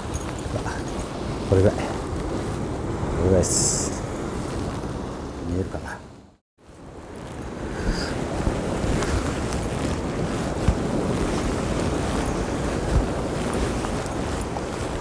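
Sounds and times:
surf on rocky shore: 0:00.0 - 0:15.0
wind buffeting microphone: 0:00.0 - 0:15.0
low thumps from gusts: 0:06.8 - 0:15.0.

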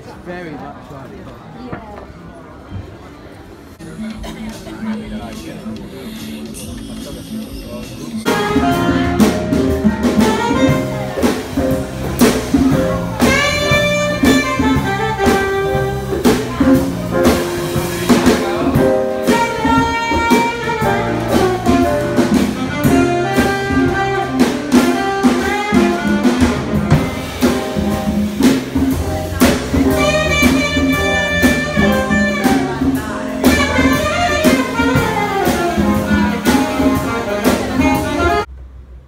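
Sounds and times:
jazz band playing: 0:03.7 - 0:38.6
saxophone melody: 0:08.2 - 0:38.5.

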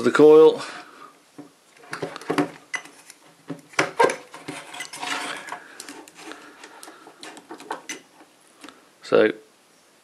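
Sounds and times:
hands clicking plastic contactor: 0:05.4 - 0:08.8.

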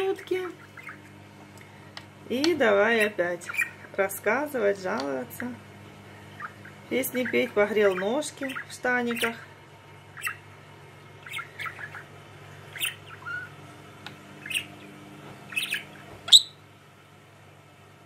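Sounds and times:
budgerigar chirping: 0:00.6 - 0:01.0, 0:03.4 - 0:03.8, 0:06.4 - 0:09.4, 0:10.2 - 0:10.4, 0:11.2 - 0:12.1, 0:12.7 - 0:13.5, 0:14.4 - 0:14.9, 0:15.5 - 0:16.6.

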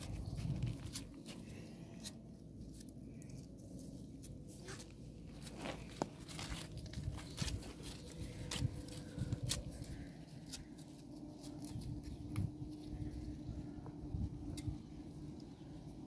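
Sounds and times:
flatbread tearing and crumbling: 0:03.0 - 0:12.4.

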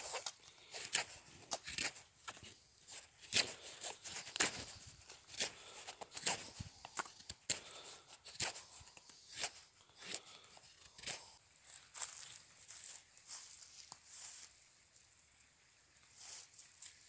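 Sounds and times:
knife scraping wood: 0:00.0 - 0:11.4.

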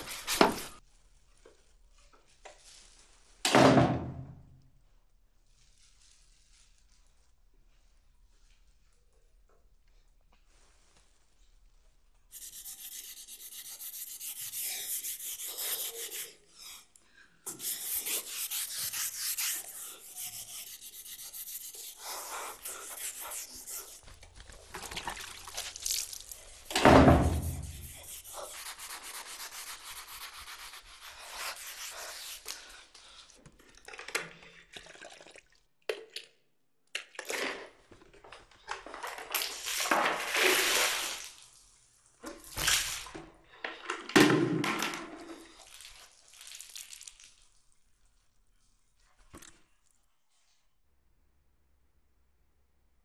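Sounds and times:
scrubbing tiled floor: 0:00.0 - 0:00.8, 0:12.3 - 0:16.9, 0:17.5 - 0:33.3, 0:38.9 - 0:43.2.

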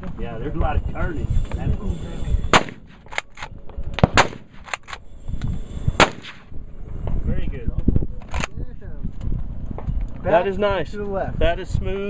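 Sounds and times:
rifle shots: 0:02.5 - 0:05.0, 0:06.0 - 0:06.5.

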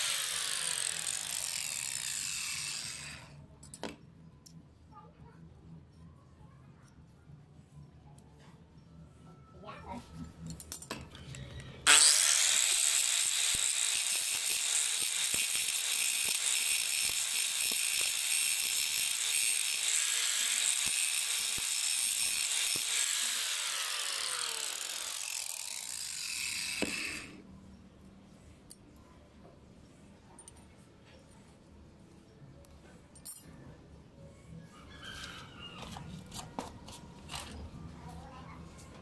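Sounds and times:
angle grinder grinding steel: 0:00.0 - 0:03.3, 0:11.9 - 0:27.4.

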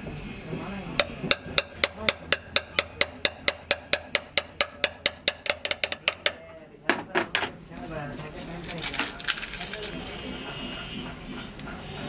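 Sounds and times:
hammer tapping metal shaft: 0:01.0 - 0:07.0.

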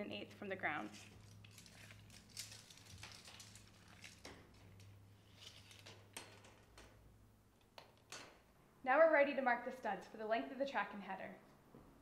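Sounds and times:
tape measure clicks and rustles: 0:00.9 - 0:06.9.

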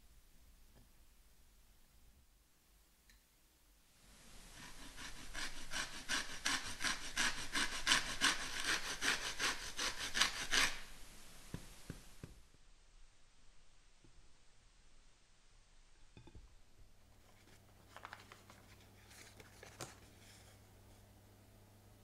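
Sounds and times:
peel rasping on metal grater: 0:04.6 - 0:10.9.

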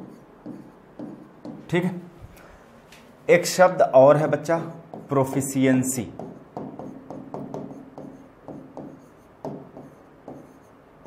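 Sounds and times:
stylus tapping and scratching: 0:00.0 - 0:01.9, 0:04.5 - 0:10.8.

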